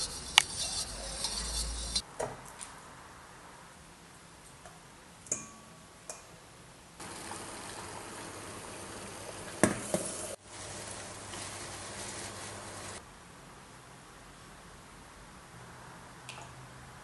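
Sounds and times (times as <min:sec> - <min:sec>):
double boiler hissing: 0:00.0 - 0:02.0, 0:07.0 - 0:13.0
spoon clinking on metal bowl: 0:00.0 - 0:02.0.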